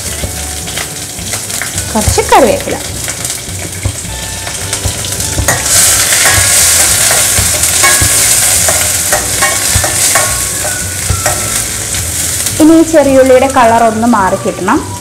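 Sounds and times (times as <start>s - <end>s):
shallots sizzling in oil: 0.0s - 15.0s
metal spoon scraping pan: 4.4s - 12.4s.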